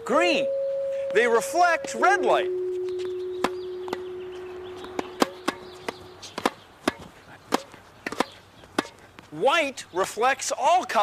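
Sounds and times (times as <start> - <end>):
steady ringing tone: 0.0 - 5.7
sharp knocks: 3.0 - 4.1.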